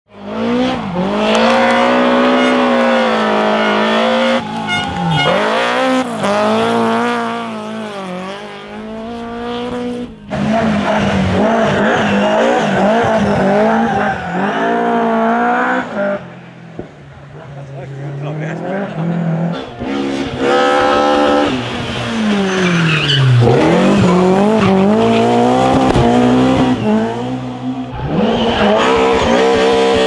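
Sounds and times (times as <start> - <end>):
rally car engines revving hard: 0.1 - 30.0
tyres squealing: 22.1 - 25.6.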